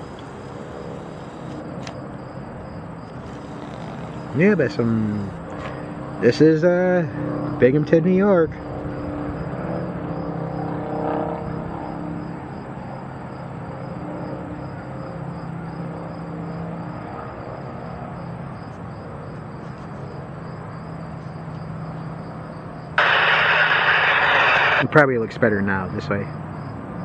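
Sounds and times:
distant engines droning: 0:00.0 - 0:27.0
loud rushing noise: 0:23.0 - 0:24.8.

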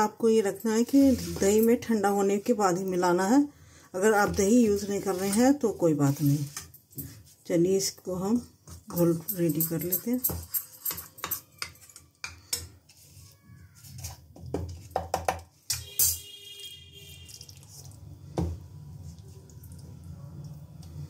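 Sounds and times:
utensils tapping dishes: 0:09.3 - 0:12.8
spoon scraping ceramic bowl: 0:09.6 - 0:14.2.

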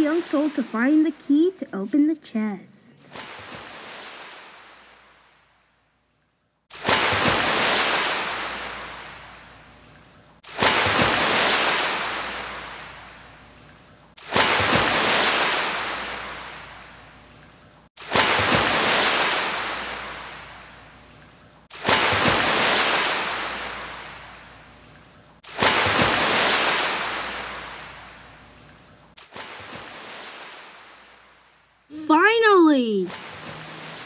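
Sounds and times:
ocean waves breaking on shore: 0:03.0 - 0:05.5, 0:06.7 - 0:09.6, 0:10.4 - 0:13.4, 0:14.2 - 0:17.4, 0:18.0 - 0:21.1, 0:21.7 - 0:24.7, 0:25.4 - 0:34.0.

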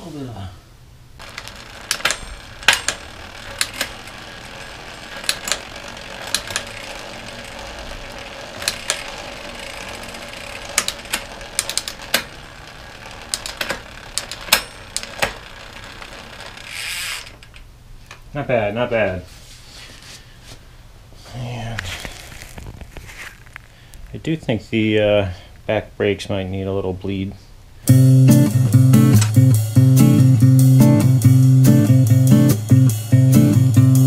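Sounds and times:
sharp clicks: 0:01.2 - 0:04.2, 0:08.6 - 0:12.4, 0:13.3 - 0:15.4
bike chain and wheel whirring: 0:01.2 - 0:17.7.

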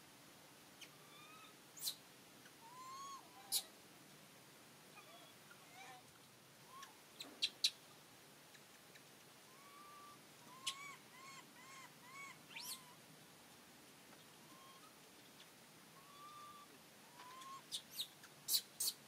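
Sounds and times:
high whistled animal calls: 0:00.8 - 0:02.0, 0:02.6 - 0:03.7, 0:06.7 - 0:07.6, 0:09.5 - 0:13.0, 0:14.5 - 0:15.0, 0:16.0 - 0:19.0.

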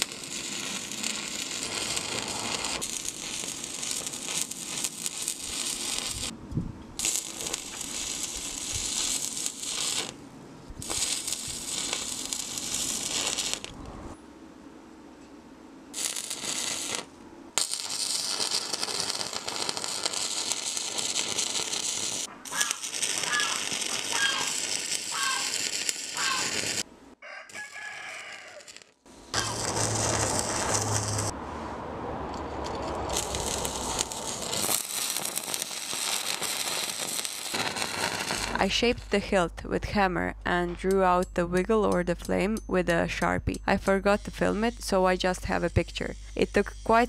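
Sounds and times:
welding arc crackling: 0:00.0 - 0:06.4, 0:07.0 - 0:10.2, 0:10.8 - 0:14.0, 0:15.9 - 0:26.9, 0:27.5 - 0:31.4, 0:32.3 - 0:40.0, 0:43.7 - 0:47.0
rooster crowing: 0:22.5 - 0:24.5, 0:25.1 - 0:25.5, 0:26.2 - 0:26.5, 0:27.2 - 0:28.8.

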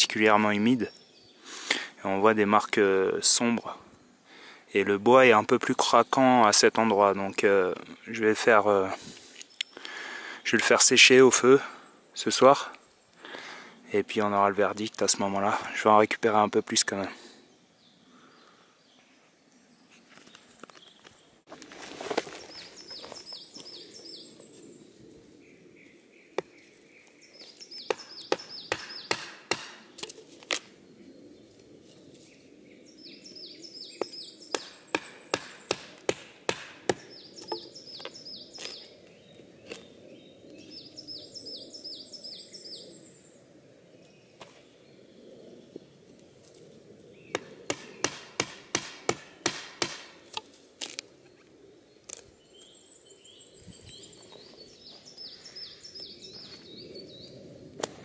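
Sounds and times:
bird singing: 0:00.0 - 0:21.5, 0:22.2 - 0:57.9
knife chopping into wood: 0:27.9 - 0:30.6, 0:34.5 - 0:37.7, 0:47.3 - 0:51.0.

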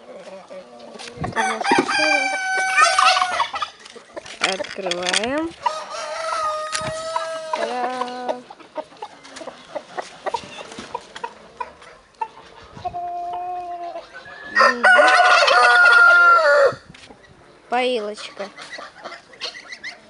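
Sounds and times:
hens clucking: 0:00.0 - 0:20.0
roosters crowing: 0:00.5 - 0:03.8, 0:05.6 - 0:08.0, 0:13.0 - 0:16.9.

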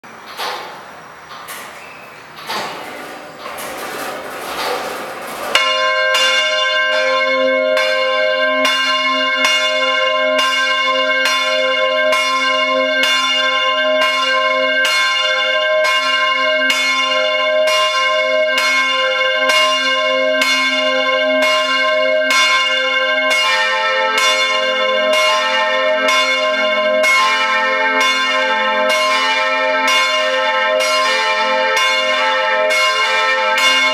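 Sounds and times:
church bell ringing: 0:02.4 - 0:33.9
lower-pitched church bell: 0:03.6 - 0:33.9.

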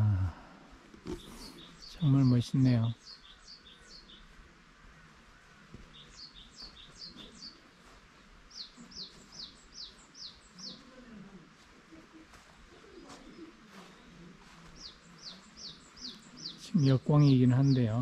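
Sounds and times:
small songbird singing: 0:01.1 - 0:04.4, 0:05.9 - 0:07.6, 0:08.5 - 0:11.0, 0:13.2 - 0:18.0.

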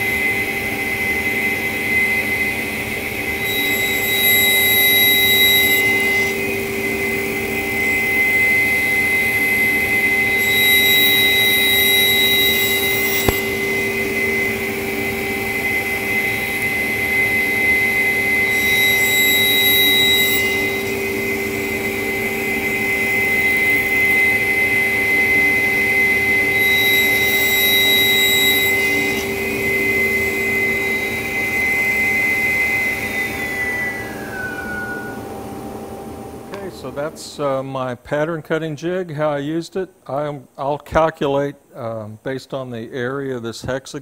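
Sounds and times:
table saw blade whine: 0:00.0 - 0:37.5
saw spinning down: 0:00.1 - 0:37.1
saw blade cutting wood ringing: 0:03.2 - 0:35.4.

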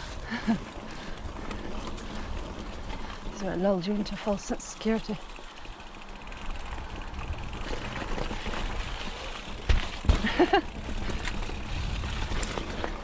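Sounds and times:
bike tyres rumbling on dirt: 0:00.0 - 0:13.0
bike thumping down steps: 0:07.5 - 0:13.0.

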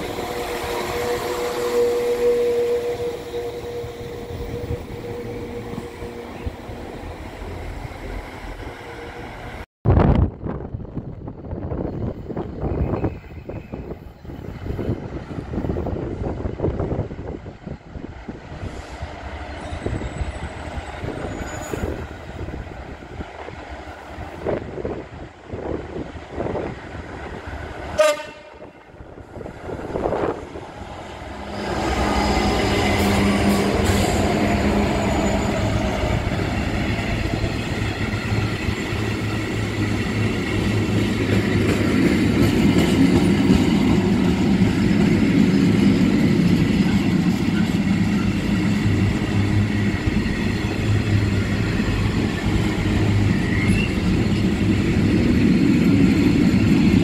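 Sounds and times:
train horn blast: 0:00.0 - 0:06.7, 0:28.0 - 0:28.8
train wheels passing: 0:10.9 - 0:57.0.

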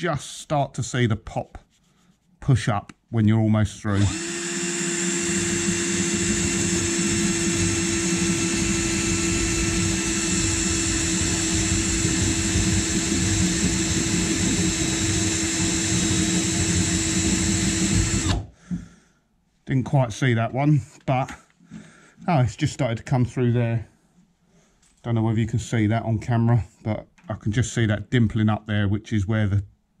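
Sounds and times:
power drill whining: 0:03.9 - 0:18.6.

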